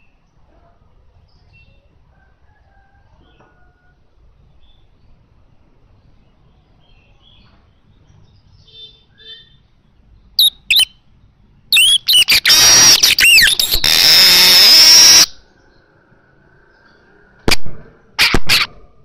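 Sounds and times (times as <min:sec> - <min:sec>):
caged bird singing: 0:06.1 - 0:16.0.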